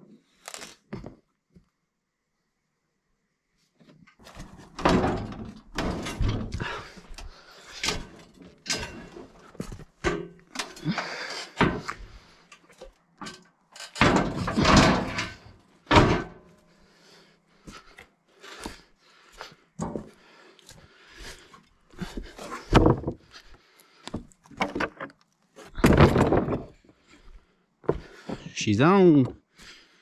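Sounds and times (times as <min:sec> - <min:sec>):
metal bangs thuds and scrapes: 0:04.3 - 0:10.9, 0:11.5 - 0:12.3, 0:13.2 - 0:16.4, 0:22.5 - 0:23.3, 0:25.7 - 0:26.8.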